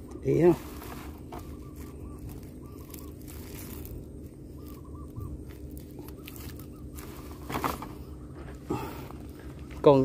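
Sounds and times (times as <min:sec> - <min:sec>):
bird calling short notes: 0:00.1 - 0:08.2.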